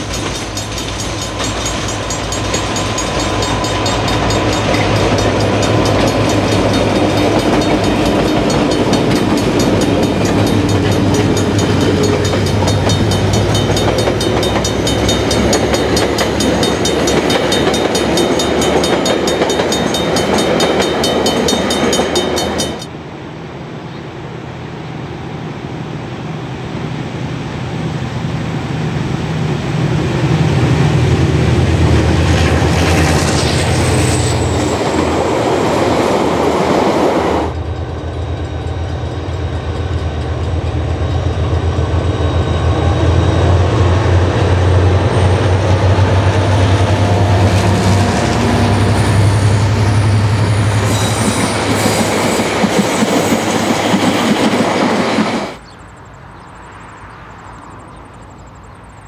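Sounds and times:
wheels clicking over rail joints: 0.0s - 22.9s
diesel locomotive engine drone: 0.0s - 59.0s
thin wheel squeal: 49.0s - 52.4s.

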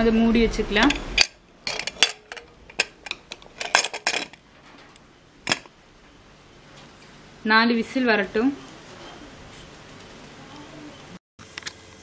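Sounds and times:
metal lid clinks and knocks: 0.9s - 4.4s.

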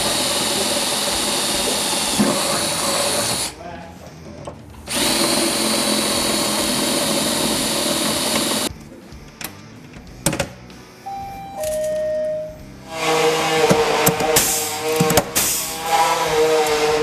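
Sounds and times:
air tool hissing: 0.0s - 3.6s, 4.9s - 8.7s, 12.9s - 17.0s.

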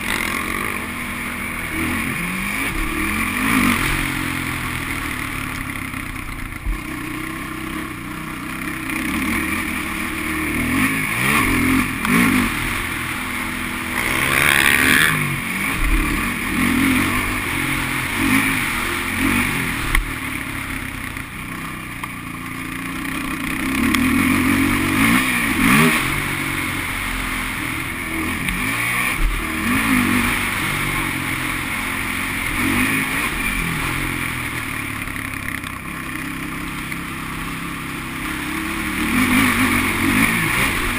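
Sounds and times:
quad bike engine revving: 0.0s - 40.9s.

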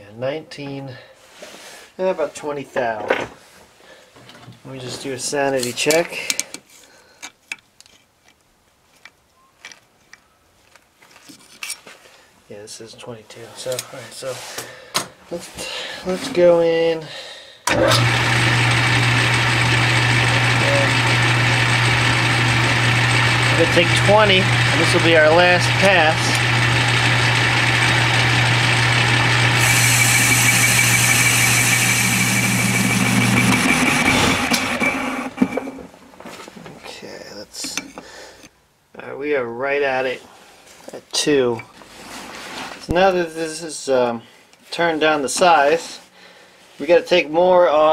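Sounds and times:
lathe motor hum: 17.7s - 35.6s
metal cutting hiss: 29.6s - 32.8s.

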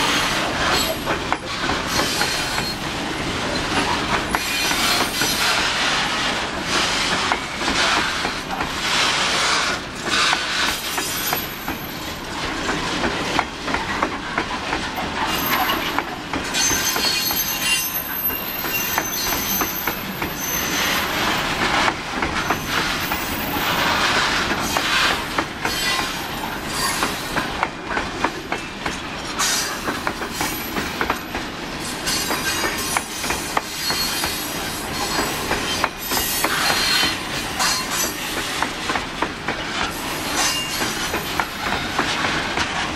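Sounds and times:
train wheels clacking over rail joints: 0.0s - 42.9s
high-pitched wheel squeals: 15.3s - 21.2s, 32.1s - 38.2s.

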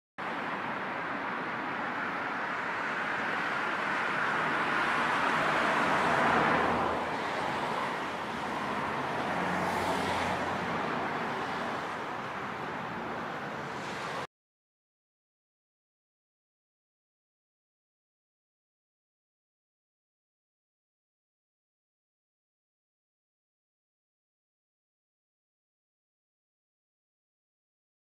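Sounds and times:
road traffic noise: 0.2s - 14.3s
vehicle passing: 2.6s - 14.3s.

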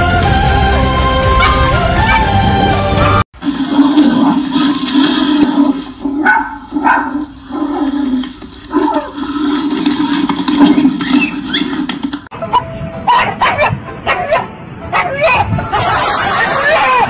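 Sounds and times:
small dog barking and yelping: 1.3s - 2.3s, 6.2s - 7.2s, 12.5s - 15.6s.

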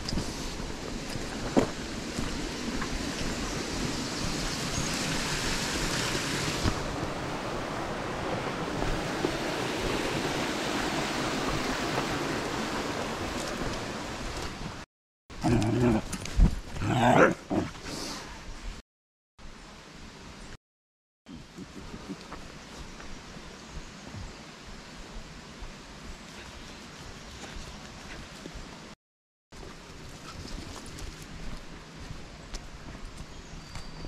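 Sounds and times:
brook running over stones: 0.1s - 14.8s.

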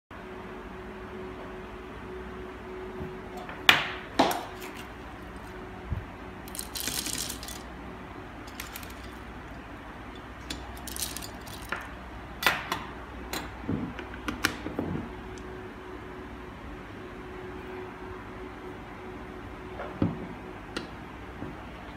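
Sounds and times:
faint steady hum: 0.1s - 21.9s
coffee beans rattling: 6.4s - 7.7s, 8.4s - 9.6s, 10.2s - 12.0s
metal and glass clicks and clatters: 6.5s - 7.6s, 8.5s - 9.3s, 10.2s - 11.9s.

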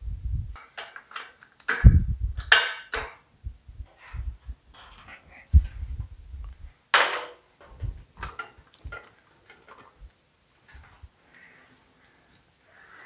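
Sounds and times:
handling noise: 3.8s - 11.8s.

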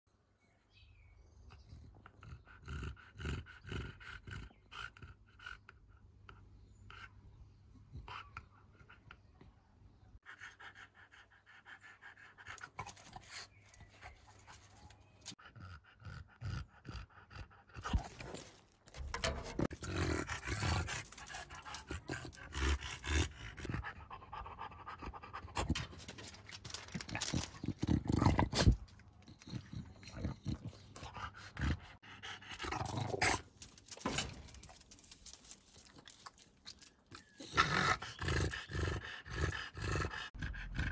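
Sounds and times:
dog panting: 10.3s - 18.4s, 19.2s - 27.6s, 28.6s - 33.4s, 37.4s - 40.9s.

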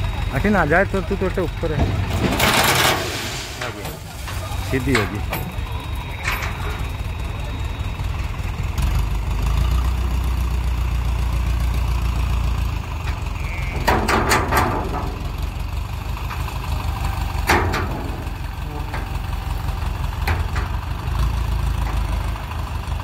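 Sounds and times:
heavy diesel engines running: 0.0s - 23.0s.

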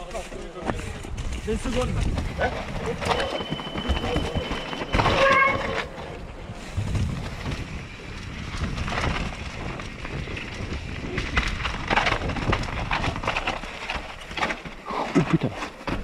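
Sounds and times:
bike tyres on dirt: 0.0s - 16.0s
bike rattling and knocking: 0.1s - 16.0s
wind rushing over microphone: 0.9s - 3.0s, 6.1s - 13.4s.

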